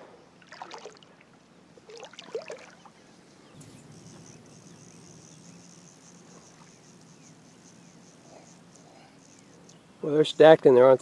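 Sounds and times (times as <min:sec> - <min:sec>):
low outdoor hum: 0:00.0 - 0:11.0
high-pitched insect-like trill: 0:03.5 - 0:10.6.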